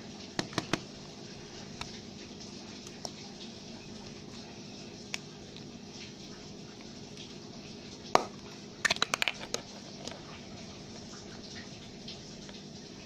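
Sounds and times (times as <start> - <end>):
plastic egg clicking open: 8.2 - 9.6.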